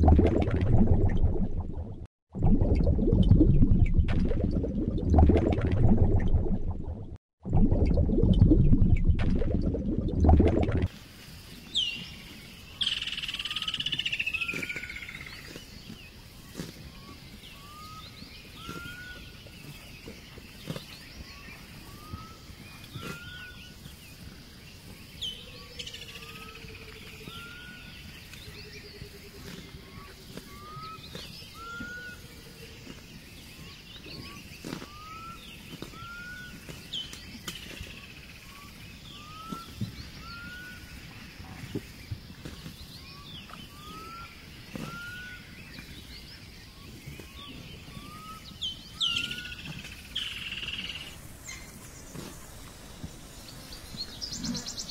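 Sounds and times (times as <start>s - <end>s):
low drawn-out tone: 0.0s - 10.9s.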